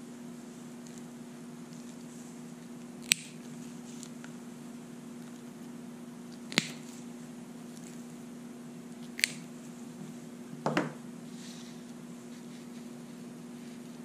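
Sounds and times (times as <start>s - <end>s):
steady low hum: 0.0s - 14.0s
wire cutters snipping plastic: 3.0s - 3.4s, 6.4s - 6.9s, 9.0s - 9.5s.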